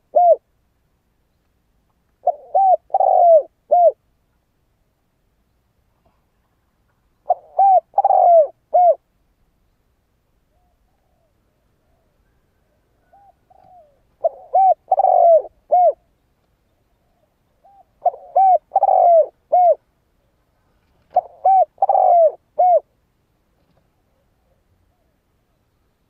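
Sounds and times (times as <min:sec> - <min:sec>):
dove cooing: 0:00.0 - 0:00.4, 0:02.2 - 0:04.0, 0:07.2 - 0:09.0, 0:10.5 - 0:16.1, 0:16.9 - 0:19.9, 0:21.1 - 0:23.0, 0:23.9 - 0:25.2.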